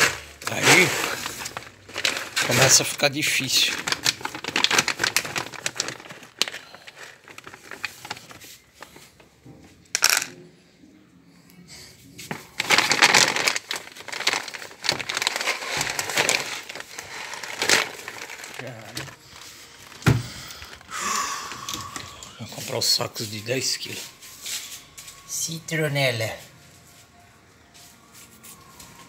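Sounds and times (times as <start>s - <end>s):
plastic packaging crinkling: 0.0s - 9.2s, 12.3s - 24.0s
sharp plastic crackle: 0.0s - 9.2s, 12.3s - 22.5s.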